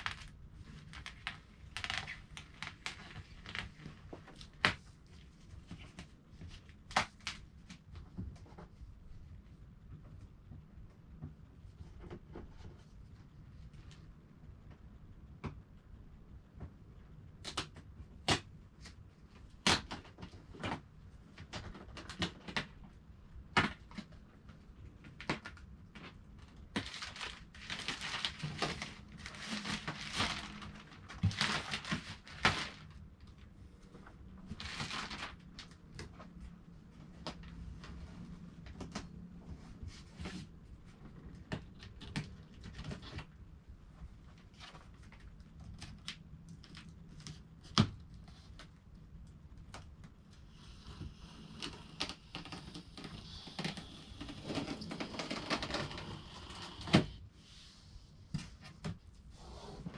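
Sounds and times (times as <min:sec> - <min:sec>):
plastic shrink wrap crinkling and tearing: 0:00.0 - 0:04.8, 0:26.7 - 0:33.0, 0:34.5 - 0:35.8.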